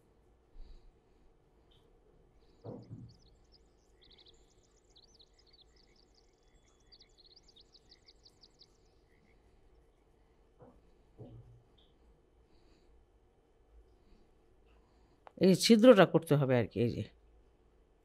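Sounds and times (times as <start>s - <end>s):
faint rapid bird chirping: 0.0s - 15.5s
soft thud: 2.6s - 3.1s.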